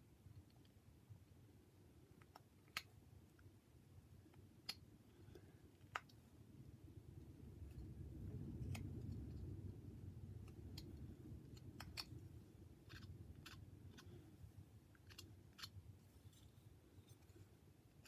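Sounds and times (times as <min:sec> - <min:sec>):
low rumble: 0:06.7 - 0:14.0.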